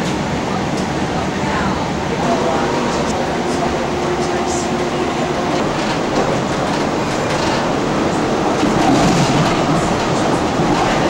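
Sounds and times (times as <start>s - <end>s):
tram wheels rumbling on rail: 0.0s - 11.0s
clicking over rail joints: 2.8s - 11.0s.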